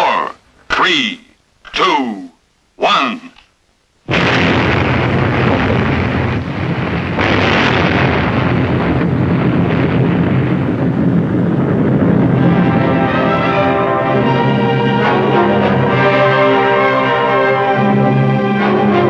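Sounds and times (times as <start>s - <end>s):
explosion roar and rumble: 4.1s - 16.7s.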